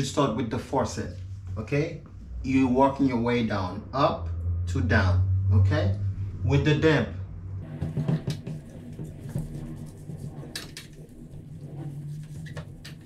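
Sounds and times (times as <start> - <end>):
low steady hum: 0.0 - 13.0
cloth wiping metal faucet: 7.9 - 13.0.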